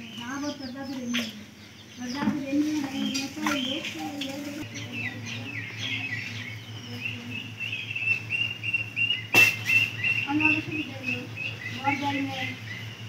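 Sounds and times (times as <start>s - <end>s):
birds chirping: 0.0s - 13.0s
sharp knock: 9.3s - 9.7s.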